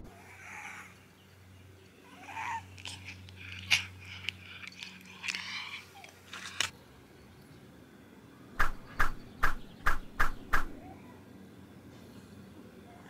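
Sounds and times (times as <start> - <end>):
sharp clicks: 8.6 - 10.8.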